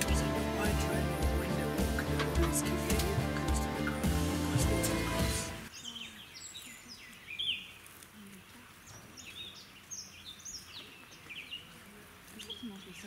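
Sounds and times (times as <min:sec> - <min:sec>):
background music: 0:00.0 - 0:05.7
small birds chirping and whistling: 0:05.7 - 0:07.9, 0:08.8 - 0:13.0.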